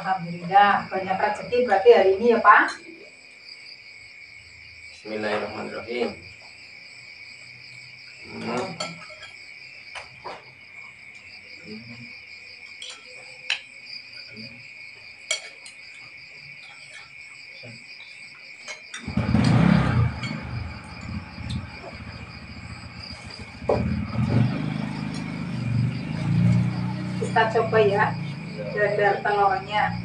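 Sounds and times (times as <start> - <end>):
crickets chirping: 0.0 - 30.0
spoons clinking on plates: 8.5 - 10.1, 12.6 - 13.7, 15.2 - 17.1, 18.0 - 19.1
loud low rumble: 19.1 - 27.2.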